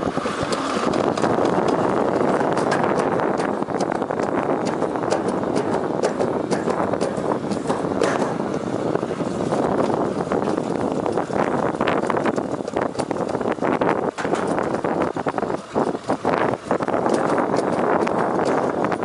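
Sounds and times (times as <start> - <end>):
sled rumbling down steel track: 0.0 - 19.0
quick clicks and knocks: 0.3 - 8.5.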